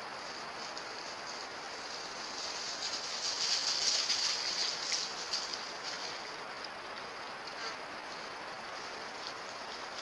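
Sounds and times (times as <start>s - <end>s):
light rustling: 0.2s - 10.0s.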